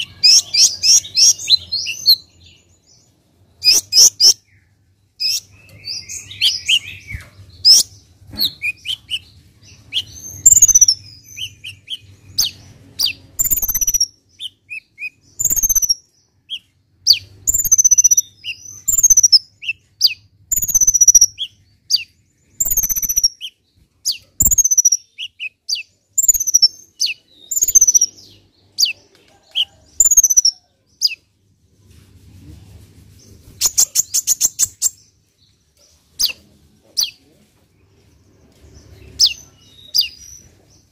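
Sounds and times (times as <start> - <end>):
sunbird singing: 0.0 - 31.2.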